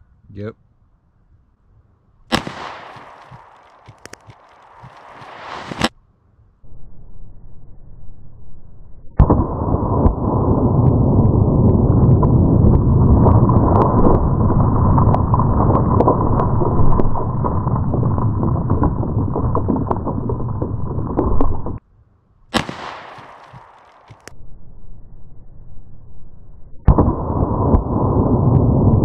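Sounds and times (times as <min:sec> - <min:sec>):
sharp pistol shot: 0:02.3 - 0:04.0, 0:04.6 - 0:05.9, 0:22.5 - 0:24.3
slowed gunshot rumble with splashes: 0:02.3 - 0:05.9, 0:09.1 - 0:21.8, 0:22.6 - 0:24.3, 0:26.8 - 0:29.0.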